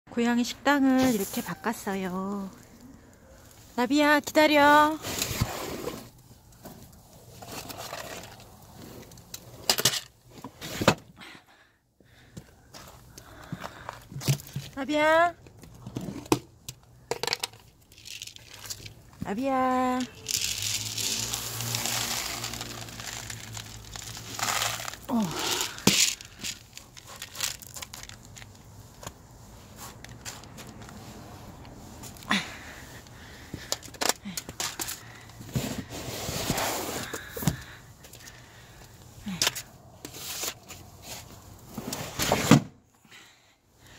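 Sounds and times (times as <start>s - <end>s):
plastic tray rustling and scraping: 5.0s - 11.0s, 20.2s - 31.0s, 34.6s - 37.6s
plastic tray crinkling: 20.2s - 28.6s.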